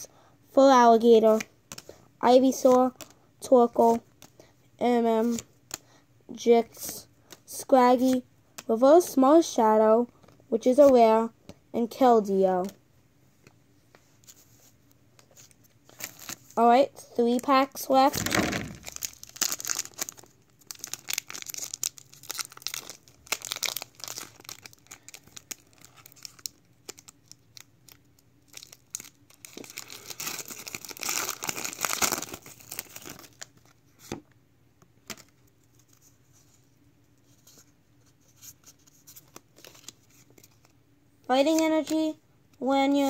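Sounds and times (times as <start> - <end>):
foil wrapper crinkling and tearing: 18.2 - 33.6.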